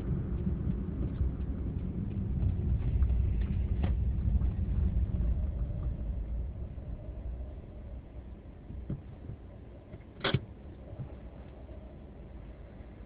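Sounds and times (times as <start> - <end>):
car interior road rumble: 0.0 - 13.0.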